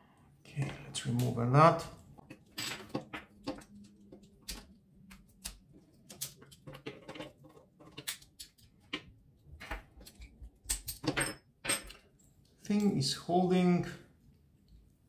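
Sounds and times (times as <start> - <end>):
small plastic and metal parts clicking: 2.2 - 11.2.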